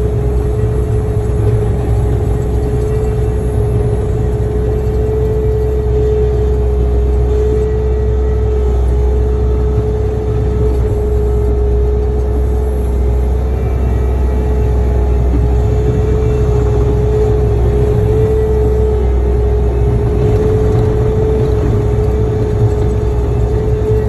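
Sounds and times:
loader engine droning: 0:00.0 - 0:24.0
steady whine: 0:00.0 - 0:24.0.

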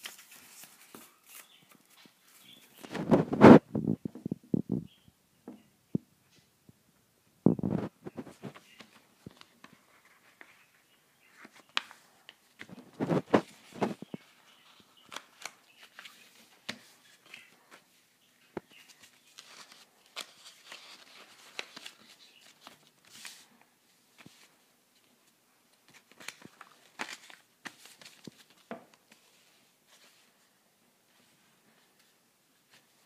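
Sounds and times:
paper rustling and crackling: 0:00.0 - 0:03.6, 0:07.6 - 0:17.8, 0:18.6 - 0:23.5, 0:25.9 - 0:30.2.

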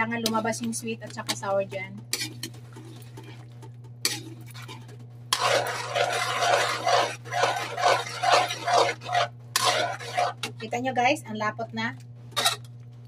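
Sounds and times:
low steady hum: 0:00.0 - 0:13.0
metal spatula scraping wok: 0:05.3 - 0:10.6, 0:12.4 - 0:12.7.

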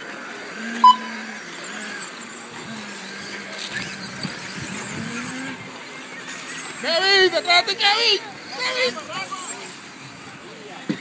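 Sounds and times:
small motors whining: 0:00.0 - 0:11.0
loud high beep: 0:00.8 - 0:01.2.

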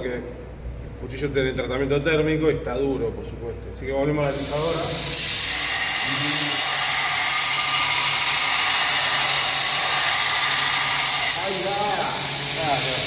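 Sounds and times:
belt grinder grinding steel: 0:05.1 - 0:13.0.

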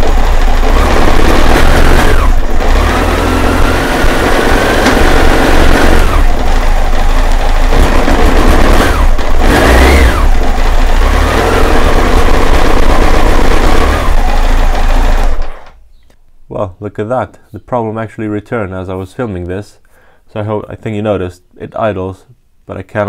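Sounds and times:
motorcycle engine idling and blipping: 0:00.0 - 0:16.1.

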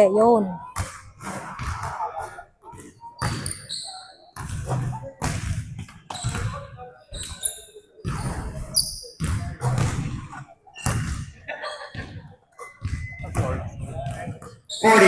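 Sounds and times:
sneaker squeaks: 0:03.0 - 0:04.9, 0:06.1 - 0:09.9, 0:10.7 - 0:11.2, 0:12.6 - 0:15.0.

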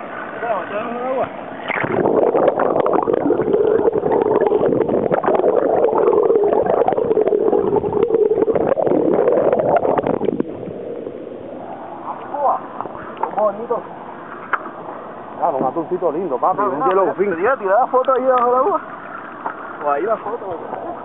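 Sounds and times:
steady wavering hum: 0:00.0 - 0:21.0
muffled underwater gurgling: 0:01.3 - 0:13.2
crackling clicks: 0:01.6 - 0:10.5
bubbles: 0:01.6 - 0:10.8.

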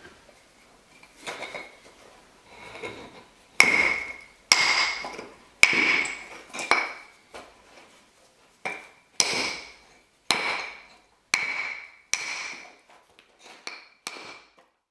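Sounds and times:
stone striking stone slab: 0:03.6 - 0:07.1, 0:08.7 - 0:12.8, 0:13.6 - 0:14.6.

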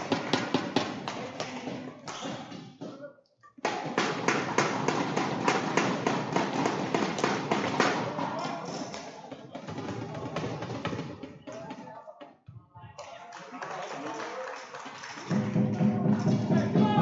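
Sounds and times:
spectators clapping: 0:00.0 - 0:02.6, 0:13.0 - 0:17.0
spectators cheering: 0:13.4 - 0:17.0.

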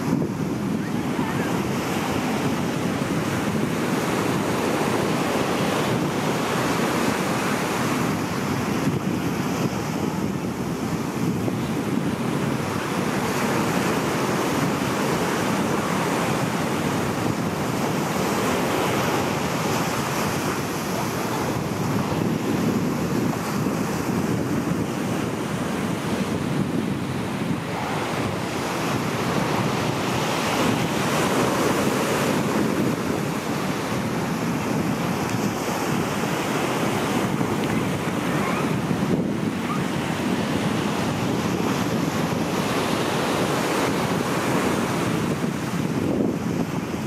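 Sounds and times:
surf breaking on rocks: 0:00.0 - 0:47.0
wind on microphone: 0:00.0 - 0:47.0.

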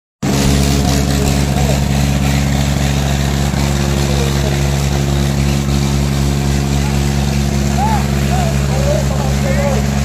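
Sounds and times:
tractor diesel engine running: 0:00.2 - 0:10.0.

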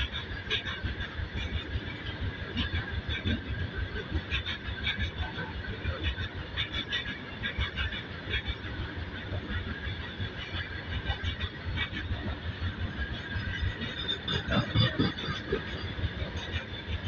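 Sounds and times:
train wheels clattering over rails: 0:00.0 - 0:17.0.

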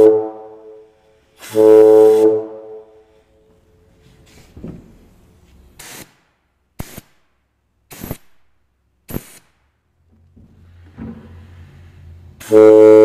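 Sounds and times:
compressed air hisses: 0:00.9 - 0:02.4, 0:05.7 - 0:07.2, 0:07.9 - 0:08.3, 0:09.1 - 0:09.6.

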